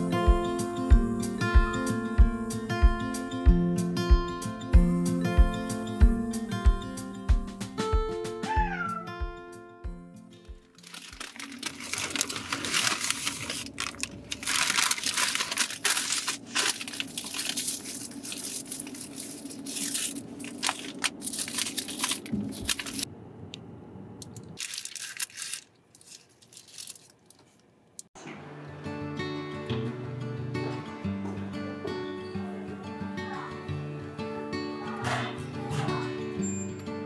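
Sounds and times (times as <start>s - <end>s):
paper bag crinkling: 10.7s - 23.1s, 24.6s - 27.7s.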